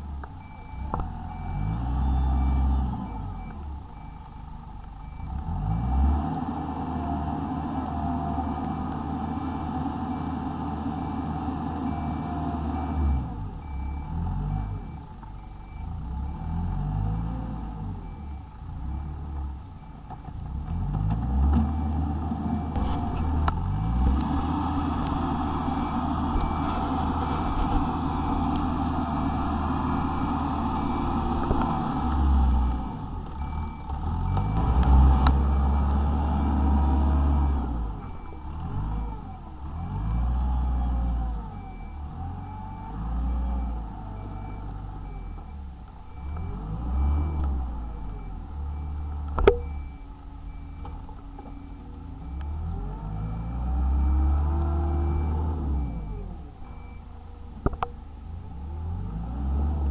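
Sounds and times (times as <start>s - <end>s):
excavator diesel engine revving: 0.0s - 4.2s, 5.0s - 19.9s, 20.5s - 57.0s, 58.5s - 59.9s.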